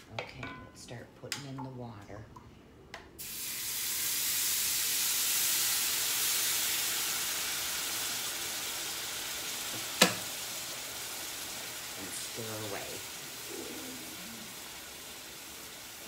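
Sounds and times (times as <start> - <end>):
water sizzling in hot skillet: 3.2 - 16.0.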